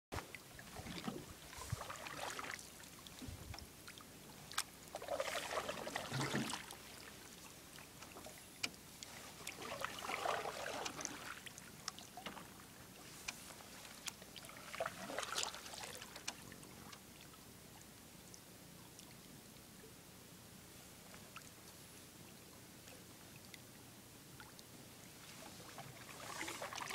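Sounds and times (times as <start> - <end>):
paddle swishing in water: 0.2 - 17.3, 25.0 - 26.9.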